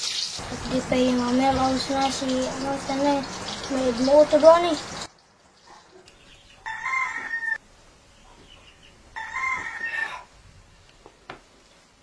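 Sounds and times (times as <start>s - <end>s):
rooster crowing: 6.6s - 7.6s, 9.1s - 10.3s.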